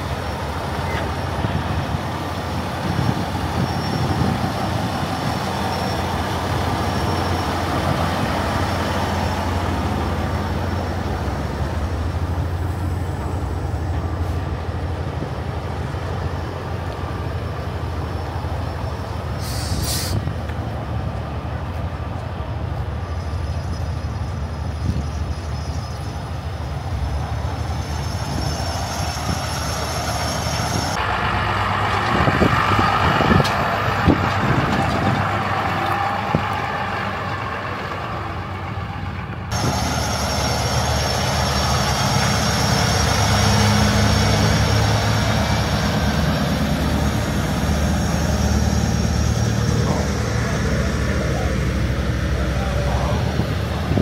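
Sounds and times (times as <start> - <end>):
diesel truck engines idling: 0.0 - 54.0
trailer clanking: 0.0 - 54.0
pickup truck passing: 26.3 - 54.0.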